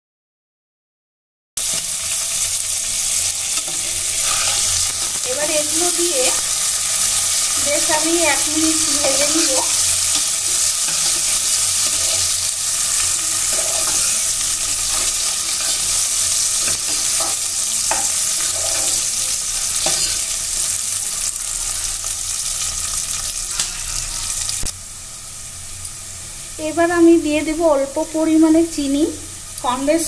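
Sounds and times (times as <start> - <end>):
vegetables sizzling in hot oil: 1.6 - 30.0
spoon scraping a pan: 3.2 - 20.8, 23.1 - 24.4.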